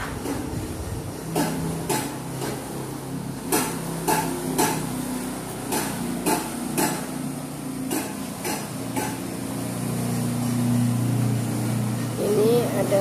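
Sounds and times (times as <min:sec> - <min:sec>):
hammer striking metal: 0:03.4 - 0:04.9, 0:05.6 - 0:07.2, 0:07.9 - 0:09.2.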